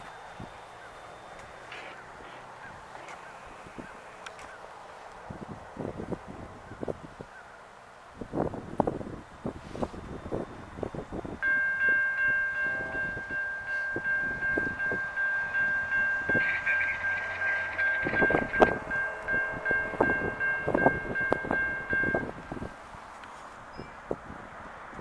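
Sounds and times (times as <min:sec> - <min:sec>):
wind buffeting microphone: 0:03.5 - 0:07.4, 0:08.0 - 0:25.0
locomotive air horn chord: 0:11.4 - 0:22.4.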